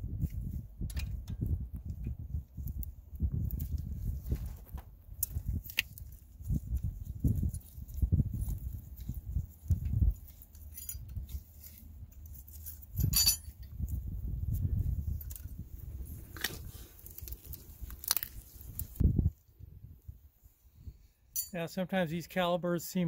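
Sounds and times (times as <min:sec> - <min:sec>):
metal clips clinking and rattling: 0:10.2 - 0:13.8.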